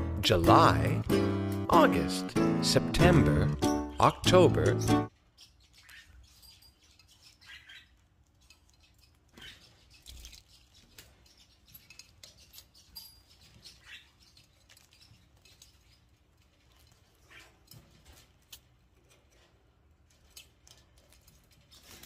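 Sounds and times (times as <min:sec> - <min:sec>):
bird rustling on perch: 0:05.3 - 0:22.0.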